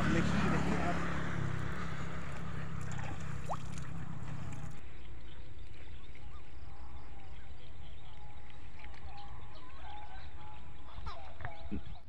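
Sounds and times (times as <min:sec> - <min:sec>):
water sloshing: 0:01.4 - 0:04.8.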